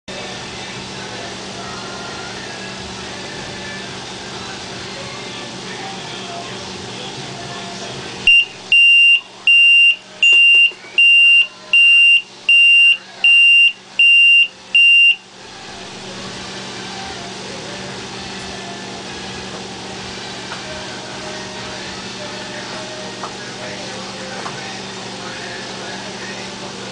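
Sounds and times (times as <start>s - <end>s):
alarm buzzer beeping: 8.3s - 15.2s.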